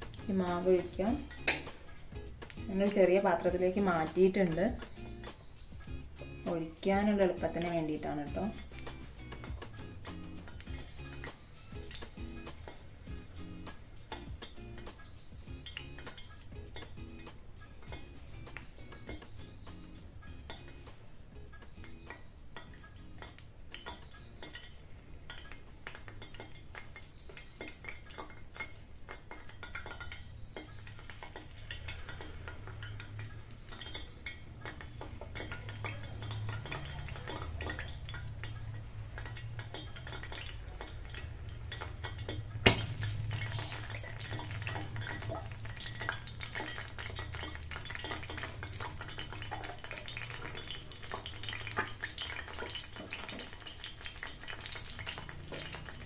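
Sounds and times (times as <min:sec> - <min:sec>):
oil frying sizzle: 0:00.0 - 0:56.0
spoon clinking on metal pan: 0:21.8 - 0:56.0.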